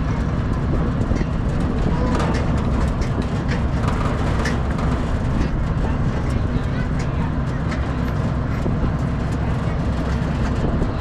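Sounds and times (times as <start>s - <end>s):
train rumbling: 0.0s - 11.0s
wooden car rattling and clicking: 0.4s - 10.9s.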